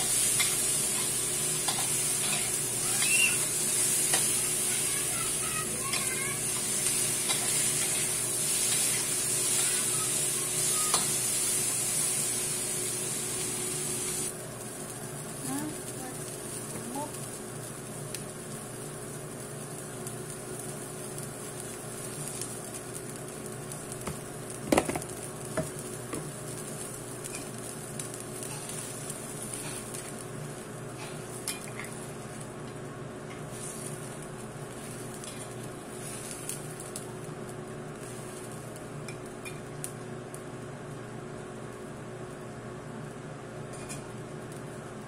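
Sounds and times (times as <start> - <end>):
food sizzling in a pan: 0.0 - 42.6.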